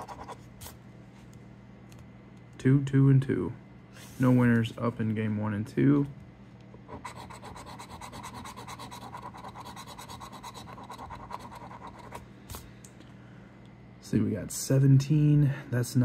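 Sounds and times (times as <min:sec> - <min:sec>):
coin scratching lottery ticket: 0:00.0 - 0:00.4, 0:06.9 - 0:12.2.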